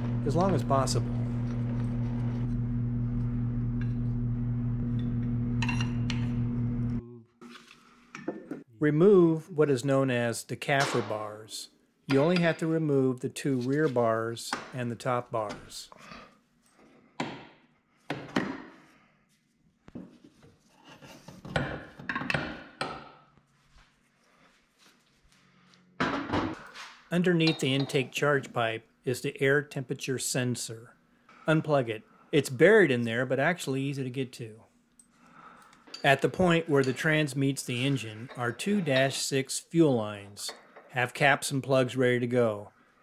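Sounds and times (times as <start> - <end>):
low hum: 0.0 - 7.2.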